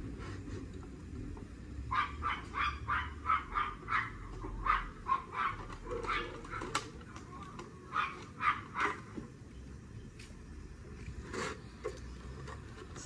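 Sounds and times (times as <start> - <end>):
dog barking: 1.9 - 6.7, 7.9 - 9.0.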